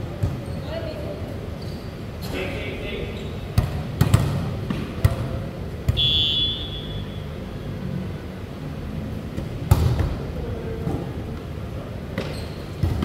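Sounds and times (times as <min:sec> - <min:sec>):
ball bouncing on floor: 0:12.2 - 0:13.0.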